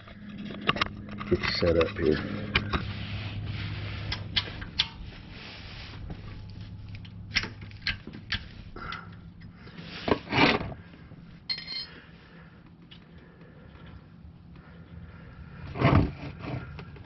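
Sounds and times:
metal scrape: 0.0s - 6.3s
wrench clinking on metal: 11.5s - 12.0s.

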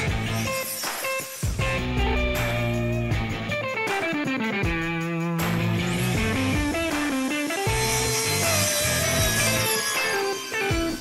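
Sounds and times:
electric guitar melody: 0.0s - 11.0s
bass line: 1.6s - 3.8s, 4.6s - 6.9s.

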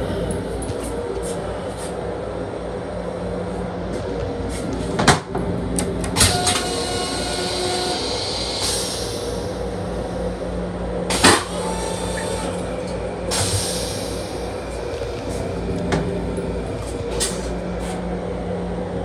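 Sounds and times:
electric train hum and rumble: 0.0s - 19.0s.

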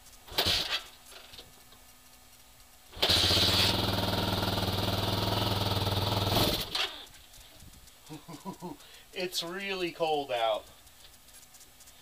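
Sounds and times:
motorcycle engine kick start: 0.2s - 1.6s, 2.9s - 7.8s
motorcycle engine running: 0.3s - 0.8s, 2.8s - 8.8s.

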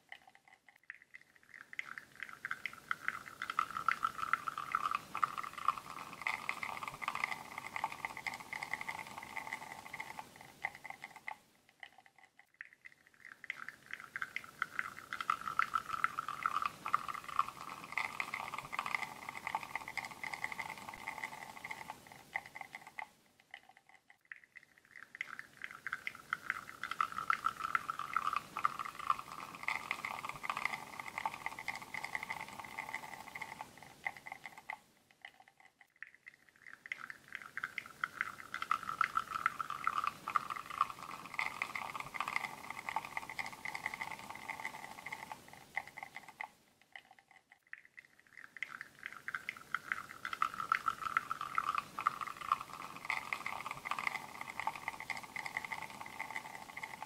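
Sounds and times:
coffee streaming into a cup: 0.0s - 57.0s.

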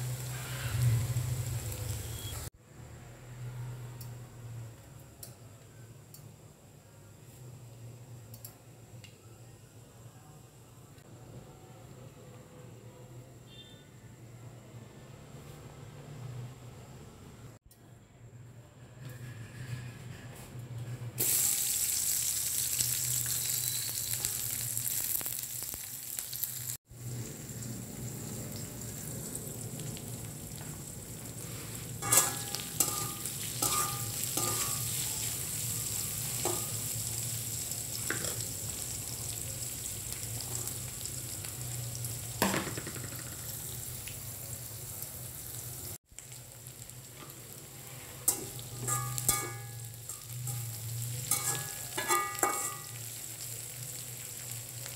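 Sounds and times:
onions sizzling in hot oil: 0.0s - 2.5s, 21.2s - 54.9s
metal spatula clinking against pan: 32.0s - 35.0s, 48.3s - 53.0s.

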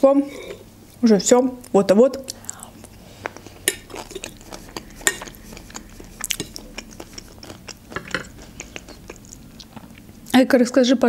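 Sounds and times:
wet chewing mouth clicks: 2.2s - 10.4s.

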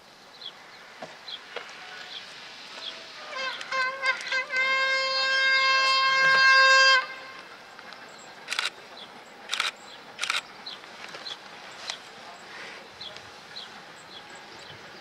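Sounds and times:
locomotive horn blast: 3.2s - 7.5s
sharp clicks: 9.5s - 10.5s.

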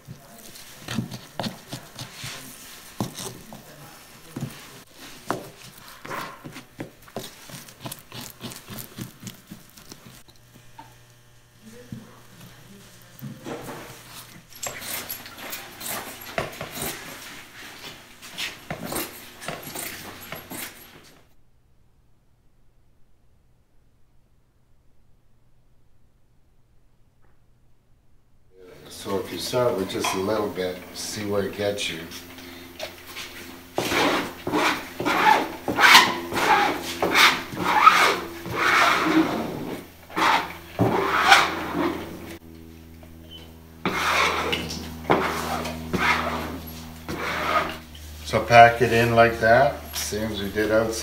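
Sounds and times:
plastic squeegee scraping: 33.2s - 42.4s, 43.8s - 49.1s.

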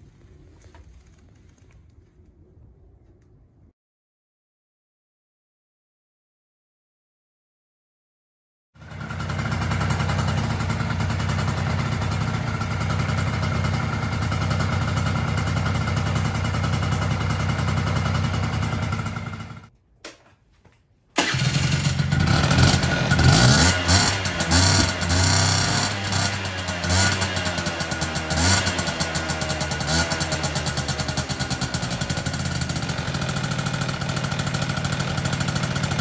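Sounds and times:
scooter engine idling and revving: 8.8s - 19.7s, 21.2s - 36.0s.

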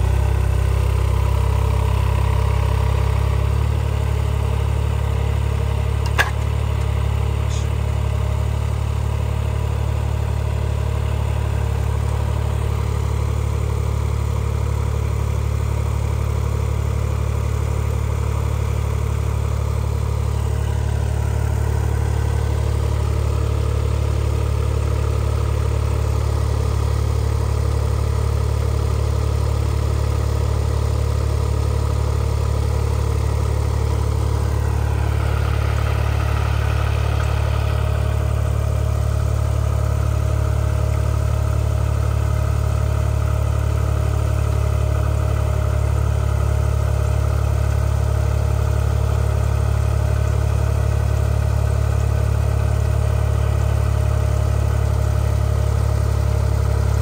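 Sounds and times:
engine idling: 0.0s - 57.0s
sharp click: 6.0s - 6.9s.

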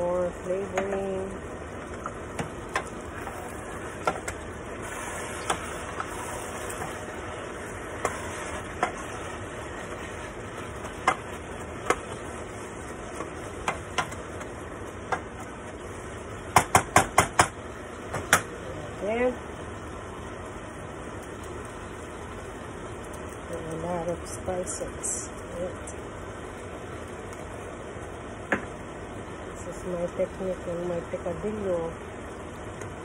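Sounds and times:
food sizzling in a pot: 0.0s - 33.0s.

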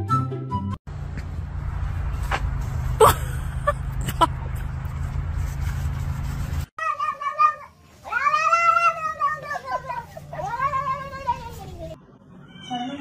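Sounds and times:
cat meowing: 12.4s - 13.0s.

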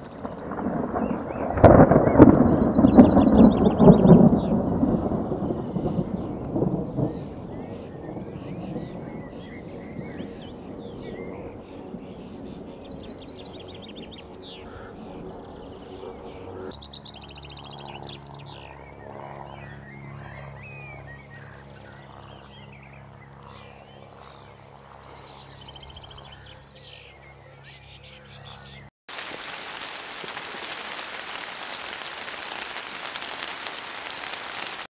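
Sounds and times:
distant thunder rumble: 0.0s - 13.6s, 29.1s - 34.9s
small birds chirping and trilling: 0.0s - 34.9s.

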